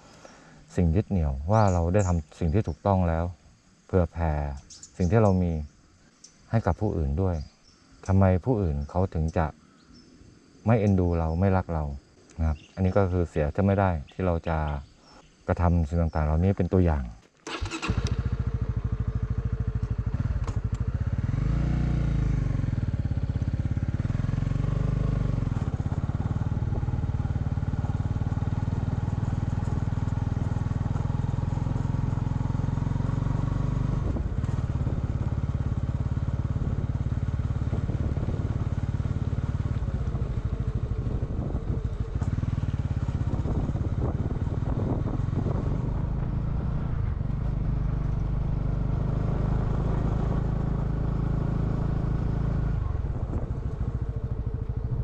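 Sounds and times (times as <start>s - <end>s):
motorcycle engine revving: 17.4s - 55.0s.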